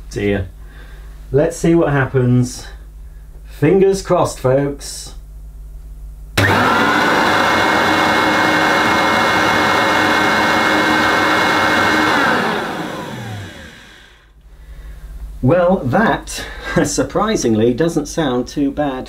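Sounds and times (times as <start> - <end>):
vacuum cleaner motor whining: 6.4 - 14.2.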